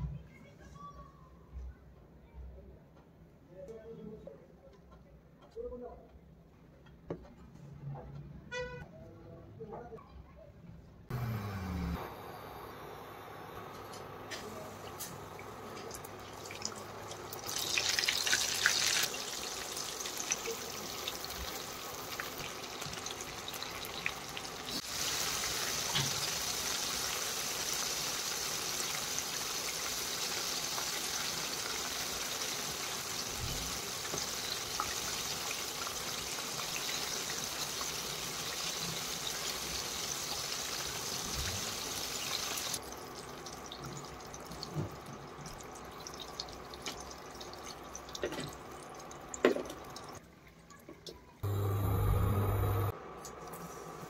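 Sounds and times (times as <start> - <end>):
chicken deep-frying in oil: 12.6 - 54.0.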